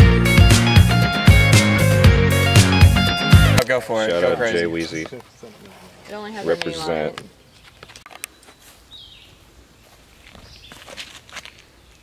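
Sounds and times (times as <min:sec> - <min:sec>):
footsteps on dirt and leaves: 0:07.2 - 0:12.0.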